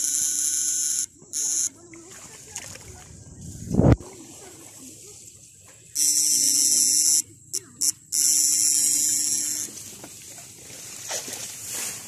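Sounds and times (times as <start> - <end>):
electric shocker buzzing: 0.0 - 1.8, 6.0 - 10.0.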